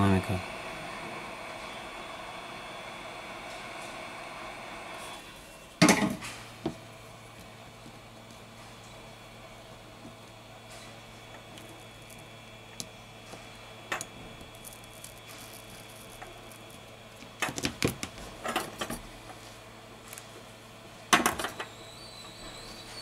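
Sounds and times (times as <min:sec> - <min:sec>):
faint steady hum: 0:00.0 - 0:23.0
plastic parts clicking and knocking: 0:17.3 - 0:19.0.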